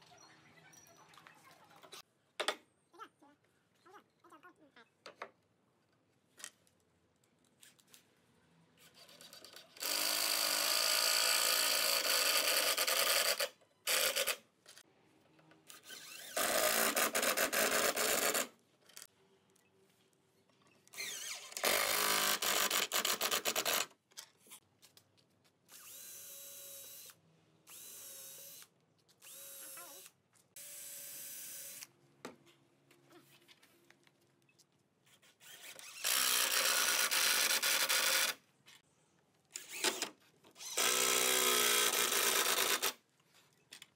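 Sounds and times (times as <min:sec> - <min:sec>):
cordless drill driving screws: 0:09.2 - 0:14.4, 0:15.7 - 0:18.5, 0:20.9 - 0:23.8, 0:25.7 - 0:30.1, 0:35.3 - 0:38.4, 0:39.5 - 0:43.0.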